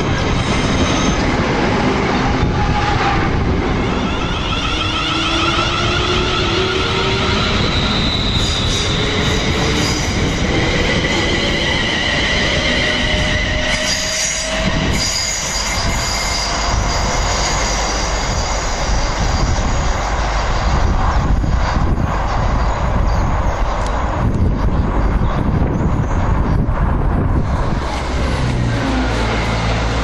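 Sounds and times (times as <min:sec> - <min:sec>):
rail noise: 0:00.0 - 0:30.0
train wheel squeal: 0:00.1 - 0:01.3, 0:03.8 - 0:20.2.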